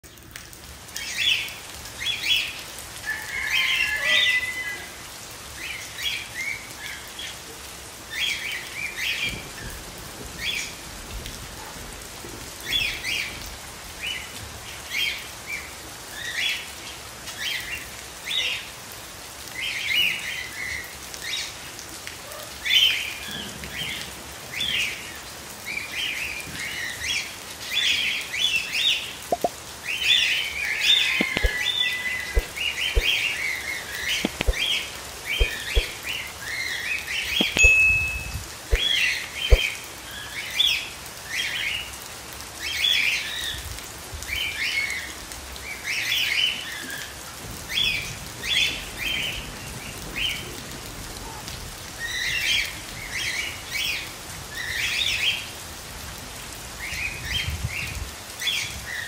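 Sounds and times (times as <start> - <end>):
steady rain falling: 0.0 - 59.0
high bird chirps: 31.2 - 31.7, 34.2 - 36.0, 37.4 - 39.7.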